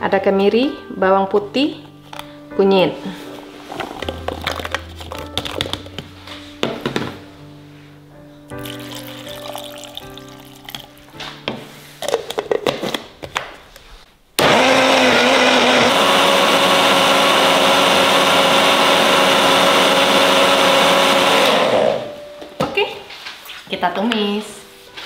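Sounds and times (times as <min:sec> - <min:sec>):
blender running at high speed: 0:14.4 - 0:22.1.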